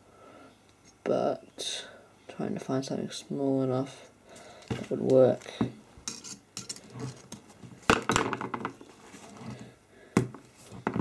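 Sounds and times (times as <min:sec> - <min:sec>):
metal parts clicking on tabletop: 0:06.1 - 0:06.9.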